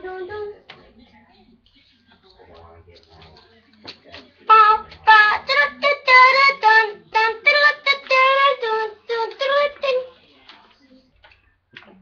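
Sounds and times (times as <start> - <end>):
high voice singing unaccompanied: 0.0 - 0.8, 4.5 - 10.2.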